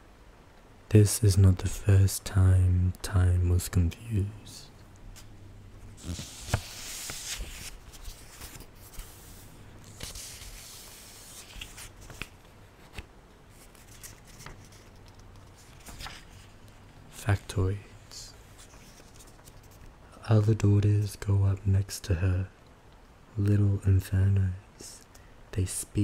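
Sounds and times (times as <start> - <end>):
book pages rustling: 5.1 - 17.5, 18.4 - 20.0.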